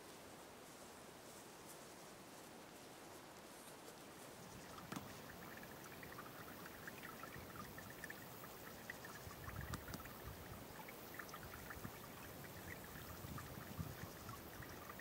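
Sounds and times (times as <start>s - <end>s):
water trickling in a ditch: 4.4s - 15.0s.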